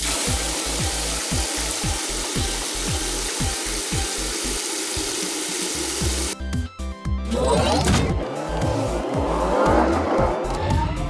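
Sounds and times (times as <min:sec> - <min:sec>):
background music with kick drum: 0:00.0 - 0:05.1, 0:06.0 - 0:11.0
nozzles hissing spraying foam: 0:00.0 - 0:06.4.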